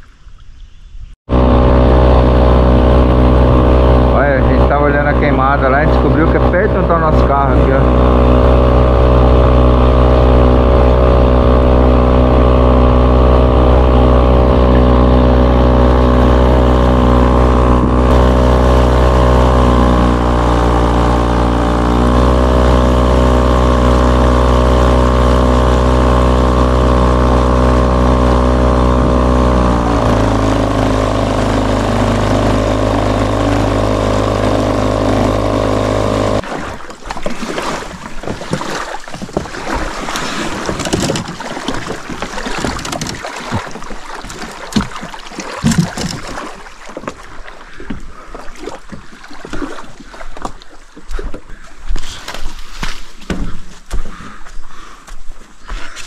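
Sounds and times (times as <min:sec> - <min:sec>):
motor engine running: 0:01.3 - 0:36.5, 0:39.4 - 0:47.1.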